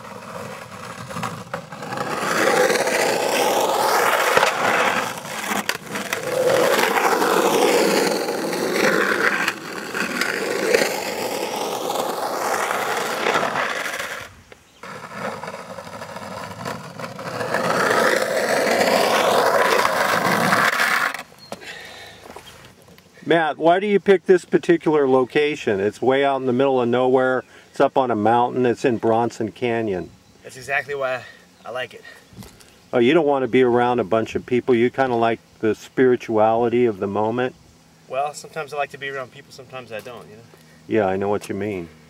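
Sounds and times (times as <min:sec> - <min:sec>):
skateboard wheels on rough concrete: 0:00.0 - 0:24.0, 0:36.5 - 0:42.0.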